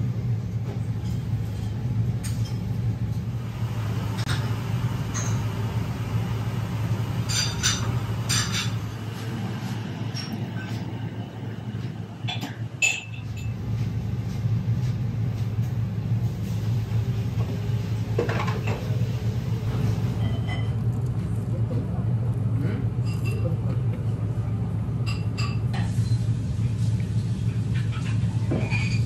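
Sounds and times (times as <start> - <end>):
restaurant low hum: 0.0 - 29.0
tableware clinking: 7.2 - 8.9, 12.2 - 13.6.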